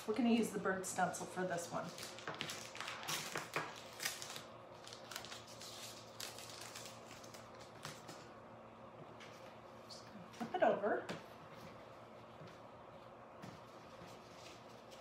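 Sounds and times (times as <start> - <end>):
tape crackles: 1.8 - 8.3
masking tape peeling: 1.9 - 7.7.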